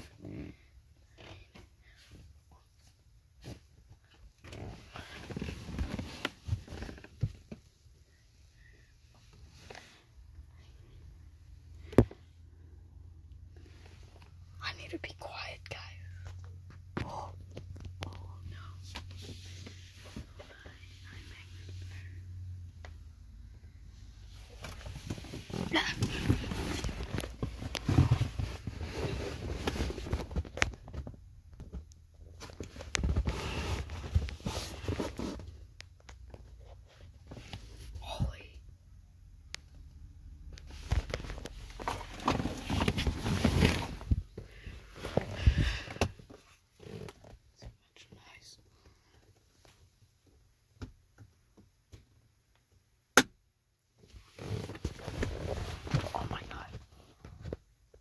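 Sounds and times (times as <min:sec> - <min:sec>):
rustling on leather seats: 0:24.3 - 0:31.1, 0:40.7 - 0:45.9, 0:54.1 - 0:56.7.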